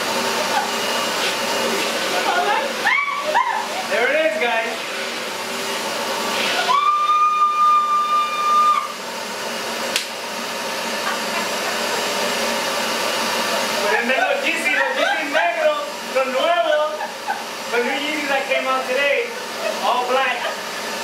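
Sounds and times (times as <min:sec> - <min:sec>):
wet dry vacuum running: 0:00.0 - 0:21.0
woman squealing: 0:02.6 - 0:03.9, 0:06.6 - 0:09.0
high whistle: 0:06.6 - 0:08.9.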